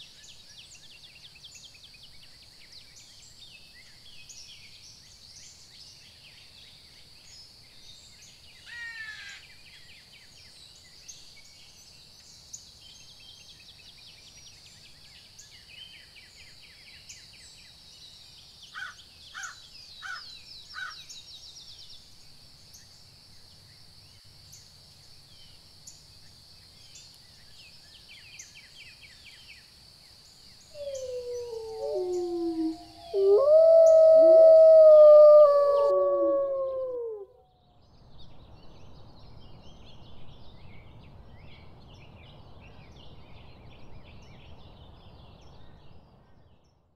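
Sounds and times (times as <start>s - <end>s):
faint chirps: 30.7s - 37.3s
wolves howling: 30.7s - 37.4s.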